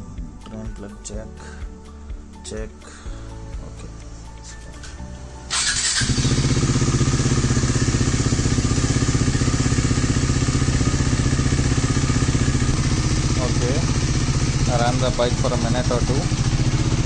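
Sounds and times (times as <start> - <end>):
electric starter cranking: 5.5 - 7.1
motorcycle engine idling: 5.5 - 17.0.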